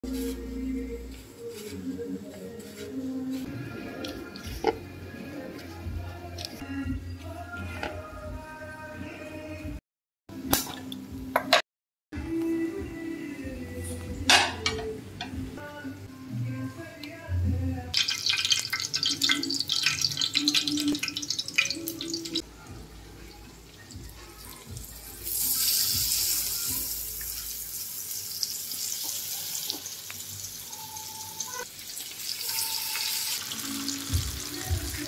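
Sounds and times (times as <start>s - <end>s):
fish fillets sizzling: 18.0s - 22.4s, 25.0s - 35.0s
hot oil crackling and spitting: 18.0s - 22.4s.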